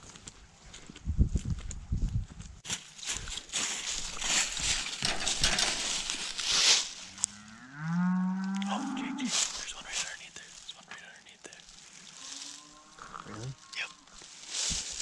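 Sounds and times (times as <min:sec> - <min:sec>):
cow mooing: 0:07.1 - 0:09.3, 0:12.2 - 0:14.1.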